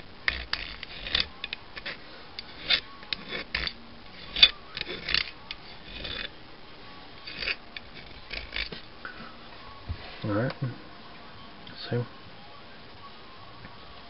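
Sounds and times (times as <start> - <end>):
hand file rasping on metal edge: 0.3 - 6.3, 7.3 - 8.8.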